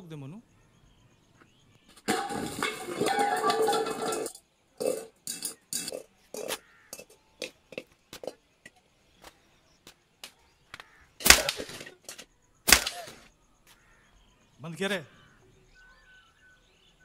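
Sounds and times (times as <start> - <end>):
metal pot knocking on concrete: 2.1 - 8.4.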